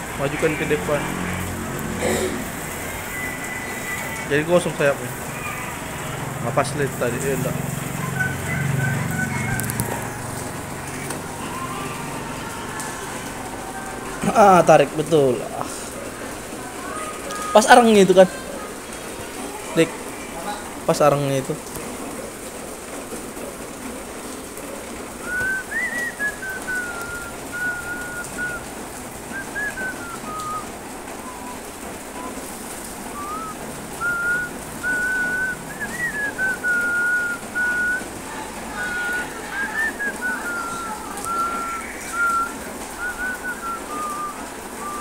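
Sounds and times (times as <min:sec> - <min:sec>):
person whistling a slow tune: 0:02.8 - 0:04.2, 0:08.0 - 0:09.7, 0:25.2 - 0:28.6, 0:29.3 - 0:31.6, 0:32.2 - 0:32.4, 0:33.1 - 0:38.1, 0:38.7 - 0:45.0
steady background hiss: 0:06.3 - 0:45.0.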